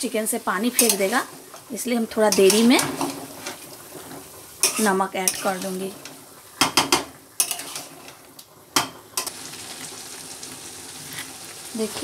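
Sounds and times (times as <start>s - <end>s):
chicken sizzling in a pan: 0.0s - 12.0s
metal spatula scraping a pan: 0.6s - 9.3s.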